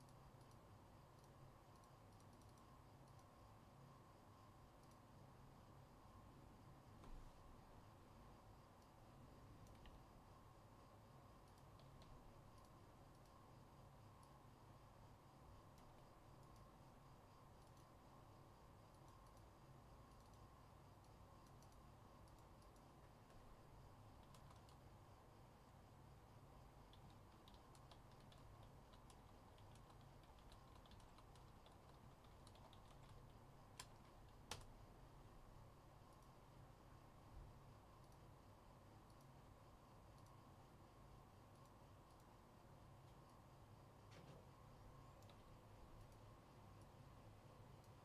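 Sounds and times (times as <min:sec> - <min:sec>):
low room hum: 0:00.0 - 0:48.0
typing on computer keyboard: 0:11.4 - 0:13.4, 0:24.1 - 0:24.9, 0:26.9 - 0:34.7.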